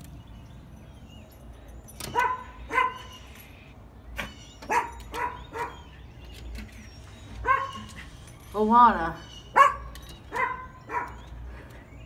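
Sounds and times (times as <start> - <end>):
dog barking: 2.1 - 3.2, 4.7 - 5.8, 7.4 - 7.9, 9.5 - 11.2.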